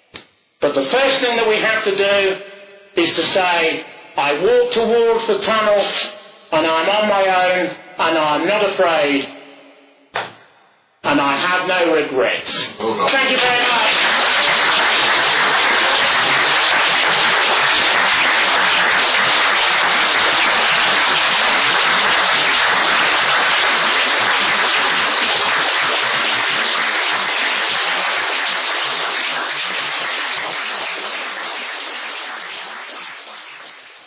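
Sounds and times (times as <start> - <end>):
audience applauding: 13.0 - 33.9.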